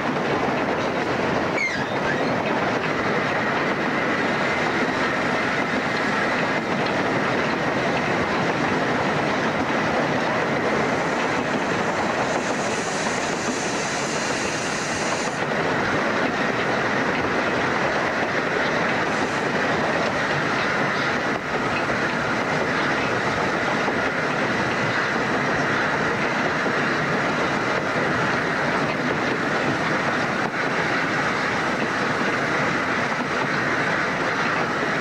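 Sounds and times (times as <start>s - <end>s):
steam locomotive running: 0.0s - 35.0s
steam hiss: 10.7s - 15.5s, 19.0s - 20.5s.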